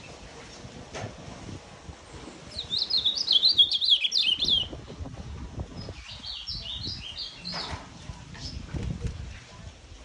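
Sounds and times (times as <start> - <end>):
bird singing warbled notes: 2.5 - 4.8.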